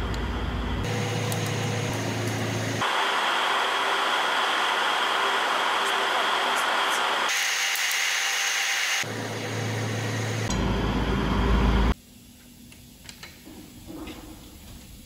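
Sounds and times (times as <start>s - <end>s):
workshop noise: 0.0s - 12.0s.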